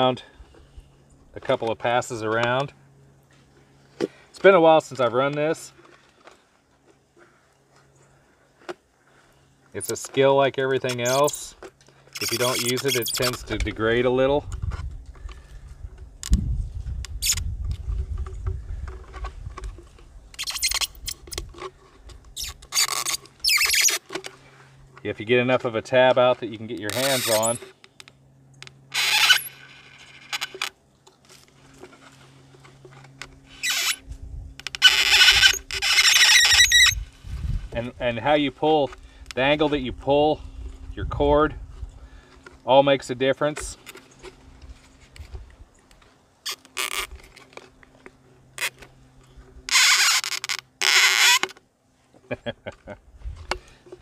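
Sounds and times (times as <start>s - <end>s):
plastic bottle crackling and scraping: 9.8s - 13.8s, 17.1s - 27.9s
short scratches: 10.8s - 13.7s, 20.4s - 21.8s, 22.4s - 24.1s, 26.9s - 27.7s, 28.9s - 30.7s, 33.5s - 34.0s, 34.6s - 37.7s.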